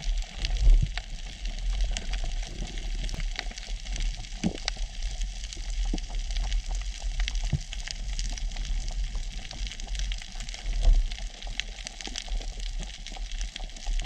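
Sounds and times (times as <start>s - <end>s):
low underwater rumble: 0.0s - 14.0s
sharp clicks and crackles: 0.0s - 14.0s.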